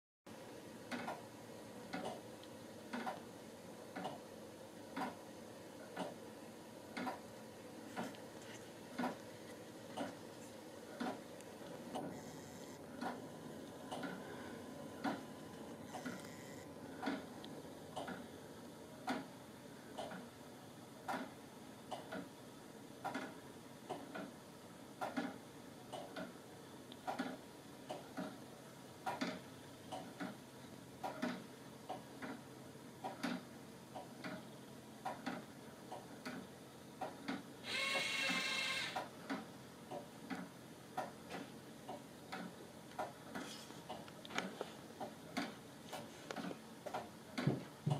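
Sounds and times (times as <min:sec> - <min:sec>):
clock ticking: 0:01.9 - 0:02.2, 0:06.9 - 0:07.3, 0:17.9 - 0:18.3, 0:19.0 - 0:19.3, 0:19.9 - 0:20.3, 0:21.9 - 0:22.3, 0:25.0 - 0:28.4, 0:31.0 - 0:32.4, 0:33.0 - 0:34.4
short motor whir: 0:37.6 - 0:39.0.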